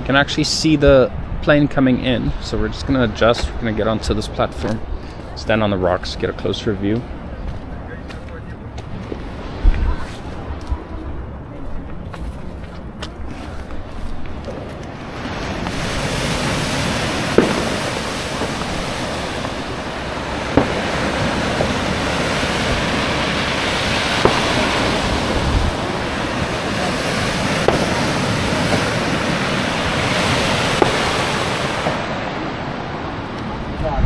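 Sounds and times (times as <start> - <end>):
wind buffeting microphone: 0.0 - 34.0
surf washing on rocky shore: 14.7 - 34.0.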